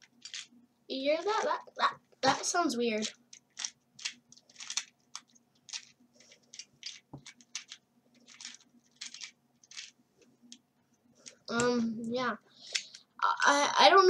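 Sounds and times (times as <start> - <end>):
puzzle cube pieces clicking: 0.0 - 0.5, 1.2 - 9.9.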